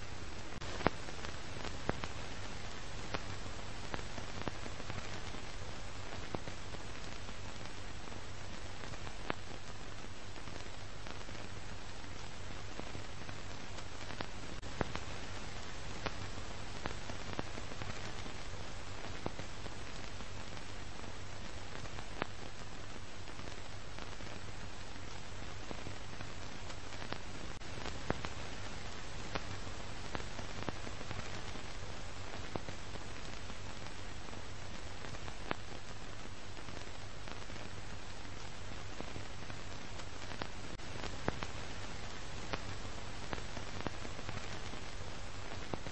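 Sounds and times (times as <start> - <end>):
faint clicks and crackles: 0.0 - 45.9
film soundtrack hiss: 0.0 - 45.9.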